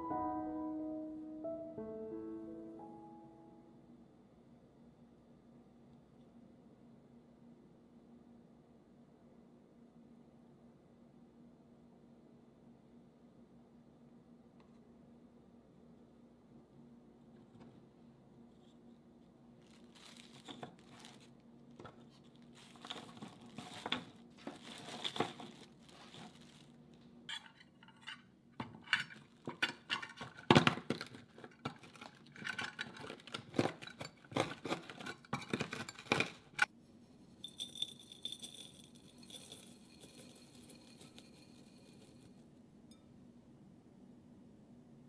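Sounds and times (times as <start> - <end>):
plastic bag crinkling: 19.6 - 27.0
cookies being crushed: 19.7 - 26.8, 29.2 - 36.7
crumbs pouring into glass bowl: 37.4 - 42.4.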